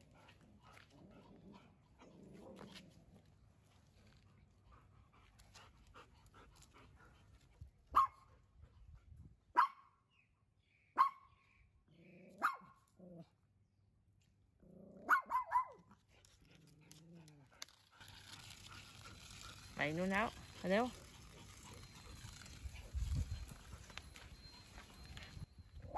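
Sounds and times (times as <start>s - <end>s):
drawn-out pitched dog calls: 7.9s - 8.2s, 12.3s - 12.7s, 15.0s - 15.8s, 18.0s - 25.9s
dogs barking: 12.4s - 12.7s, 15.0s - 15.8s.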